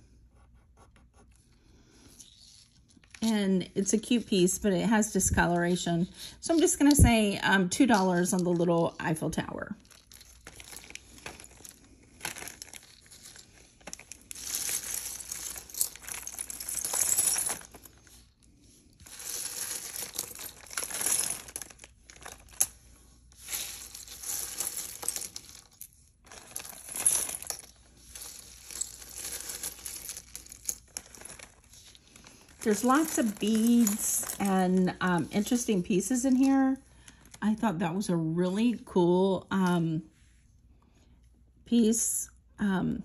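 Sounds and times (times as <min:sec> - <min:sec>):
jewelry and beads clinking: 0:02.0 - 0:37.5
rustling: 0:09.8 - 0:35.7.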